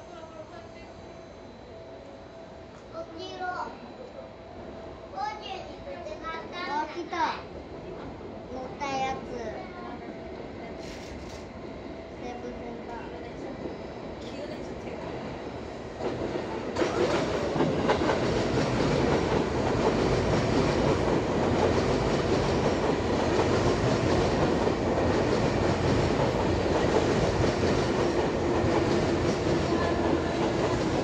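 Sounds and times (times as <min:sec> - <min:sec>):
train wheels running over rails: 0:13.6 - 0:31.0.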